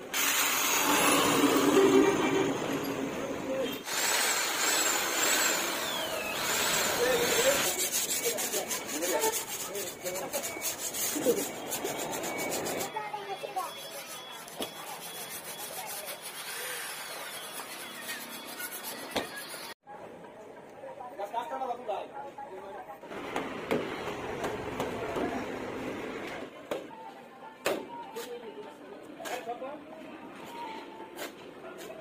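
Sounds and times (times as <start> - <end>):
sandpaper scraping on metal: 3.8 - 19.8.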